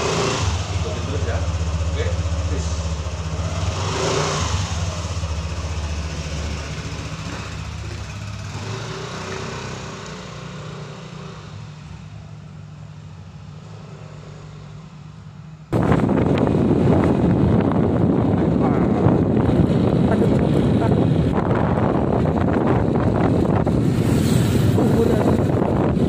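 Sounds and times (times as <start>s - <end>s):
scooter engine pulling away: 0.0s - 12.6s.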